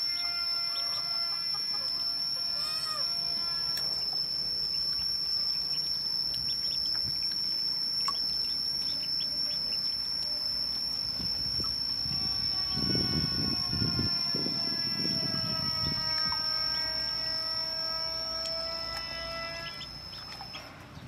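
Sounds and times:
ducklings peeping: 0:00.0 - 0:21.0
steady high-pitched whine: 0:00.0 - 0:21.0.

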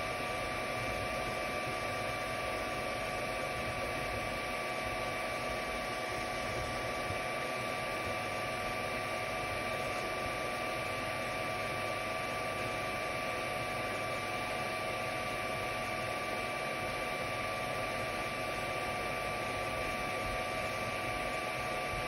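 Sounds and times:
cooling fans whirring: 0:00.0 - 0:22.0.

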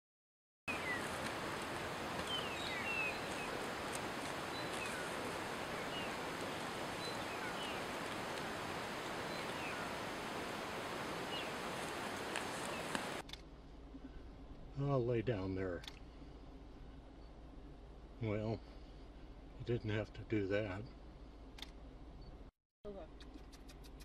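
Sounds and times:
steady outdoor hiss: 0:00.7 - 0:23.0.

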